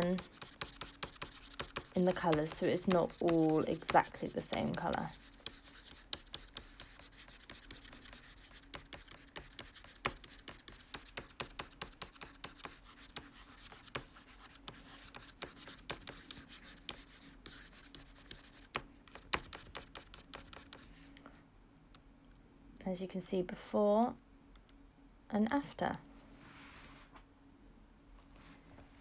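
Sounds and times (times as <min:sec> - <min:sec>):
computer mouse clicks and scratching: 0:00.0 - 0:20.8
faint steady hum: 0:00.0 - 0:29.0.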